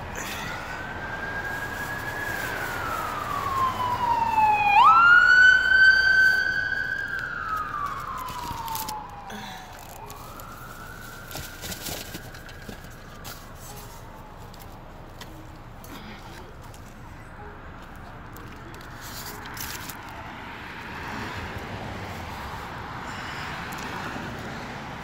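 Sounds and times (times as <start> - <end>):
emergency siren wailing: 0.0 - 15.8.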